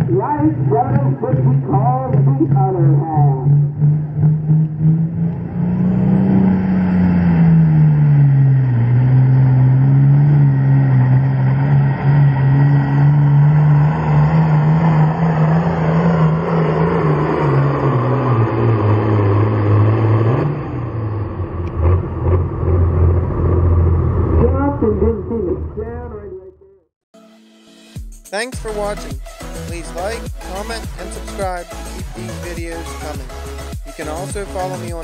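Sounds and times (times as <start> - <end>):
tractor engine droning under load: 0.0 - 26.7.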